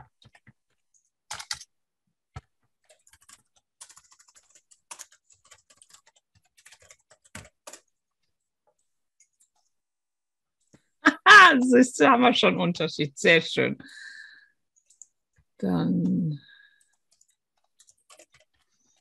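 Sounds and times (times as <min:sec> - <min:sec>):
computer keyboard typing: 0:00.0 - 0:09.8, 0:14.8 - 0:15.2, 0:16.7 - 0:19.0.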